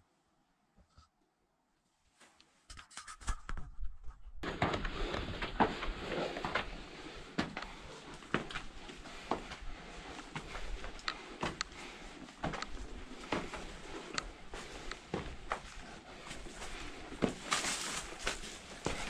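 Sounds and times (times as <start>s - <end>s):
clothing rustle: 4.4s - 19.0s
shoes scuffing on stone steps: 10.2s - 19.0s.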